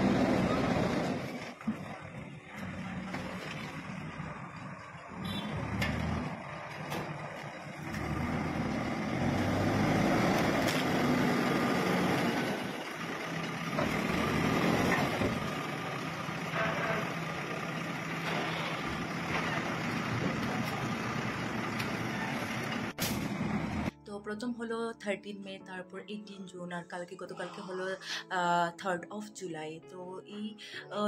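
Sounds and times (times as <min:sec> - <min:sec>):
heavy diesel engine working: 0:00.0 - 0:23.9.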